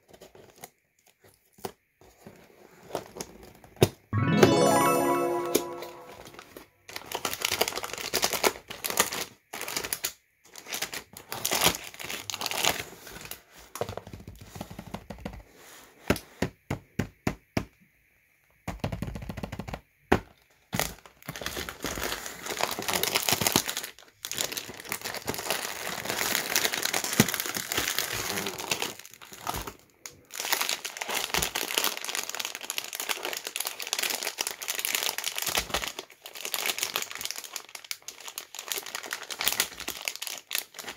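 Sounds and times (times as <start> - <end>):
plastic wrappers rustling: 6.9 - 14.7, 20.7 - 40.9.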